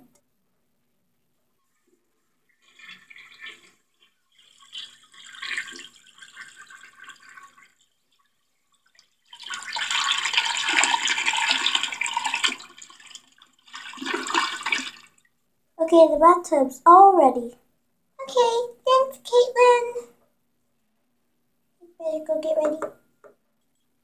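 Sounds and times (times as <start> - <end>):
toy toilet flush sound effect: 2.4 - 15.2.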